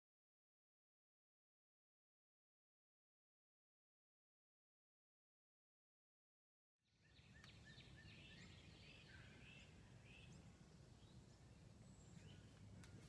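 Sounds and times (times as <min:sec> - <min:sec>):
birds chirping: 0:06.9 - 0:13.0.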